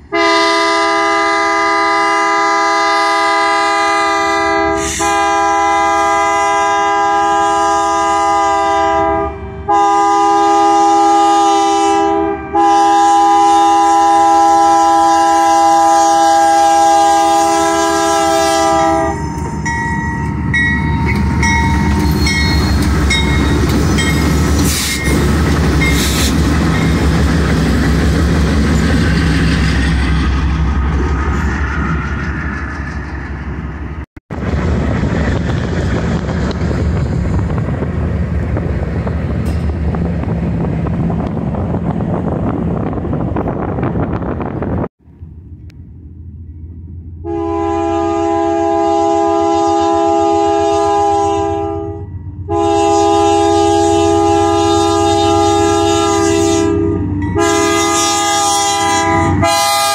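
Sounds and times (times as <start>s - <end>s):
locomotive engine and wheels rumbling: 0.0s - 59.9s
locomotive chime horn blasts: 0.1s - 25.2s, 47.2s - 59.9s.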